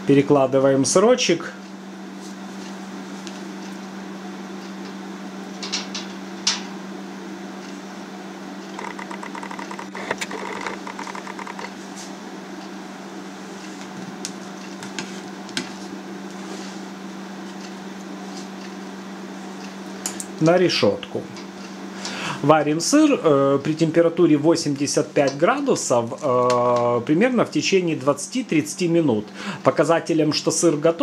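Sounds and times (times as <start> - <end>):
electric hob humming: 1.6 - 20.4
sharp clicks: 8.8 - 11.7.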